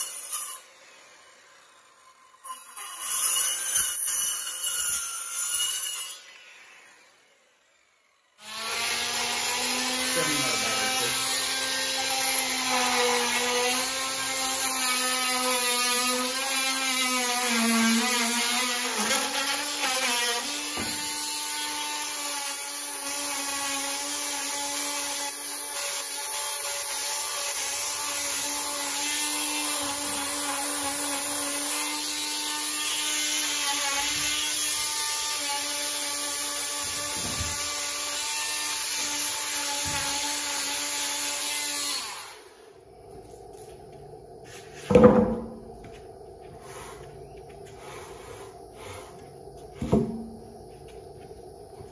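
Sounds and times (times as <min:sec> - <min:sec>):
power tool motor whine on wood: 0:05.9 - 0:46.9.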